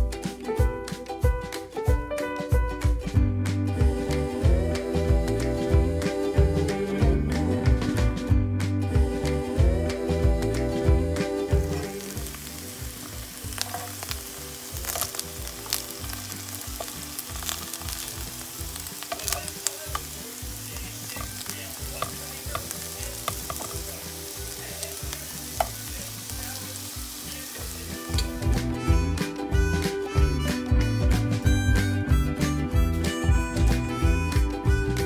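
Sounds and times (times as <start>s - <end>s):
eggplant frying in oil: 9.0s - 29.0s
crackling oil pops: 11.6s - 28.4s.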